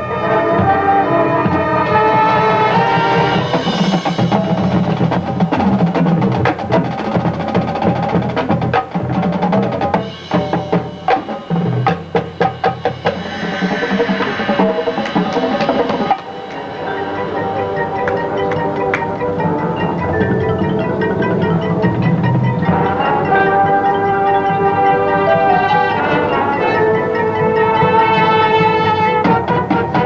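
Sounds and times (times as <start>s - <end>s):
brass playing: 0.0s - 5.1s, 13.0s - 30.0s
drumline playing: 0.0s - 30.0s.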